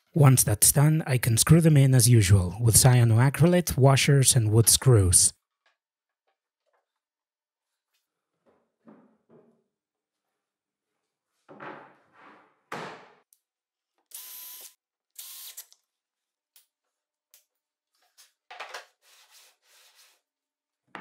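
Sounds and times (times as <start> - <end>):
cordless drill driving screws: 14.1 - 15.8.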